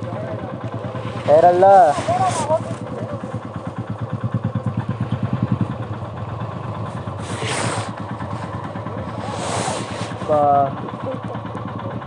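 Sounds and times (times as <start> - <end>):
motorcycle engine idling: 0.0 - 12.0
brief rushes of noise: 7.2 - 8.0, 9.1 - 10.3.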